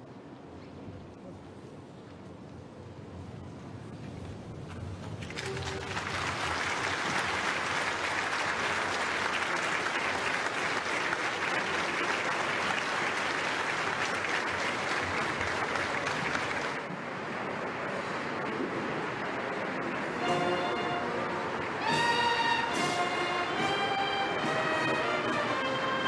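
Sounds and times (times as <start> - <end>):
audience applauding: 5.2 - 16.9.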